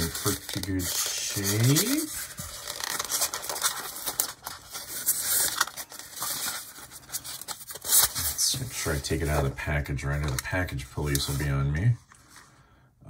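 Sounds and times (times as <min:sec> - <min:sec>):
plastic scraping on polystyrene foam: 0:00.0 - 0:04.4.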